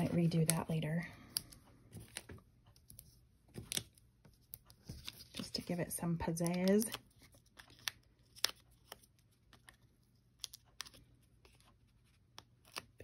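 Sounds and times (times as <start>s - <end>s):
cardstock clicks and rustles: 3.5s - 13.0s.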